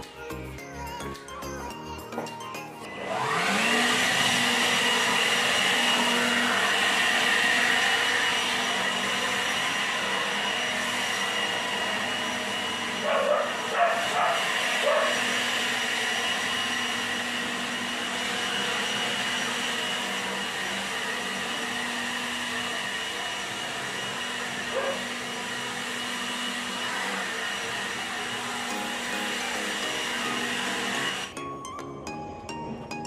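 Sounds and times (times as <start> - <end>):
leaf blower running: 2.2 - 31.4.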